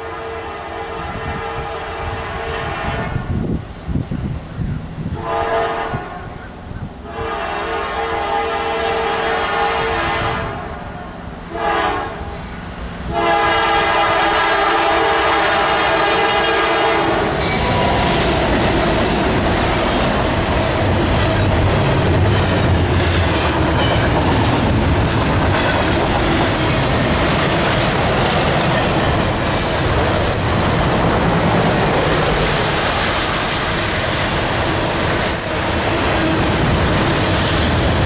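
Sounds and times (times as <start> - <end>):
locomotive chord horn: 0.0 - 3.4, 5.2 - 12.4, 13.1 - 18.2
locomotive engine drone: 15.0 - 38.0
train cars clattering over rail joints: 17.3 - 38.0.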